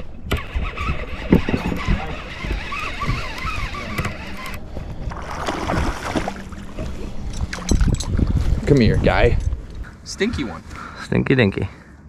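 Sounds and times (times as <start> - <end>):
wind buffeting microphone: 0.0 - 10.9
water slapping against hull: 0.3 - 8.7
fishing reel retrieving: 0.4 - 4.6.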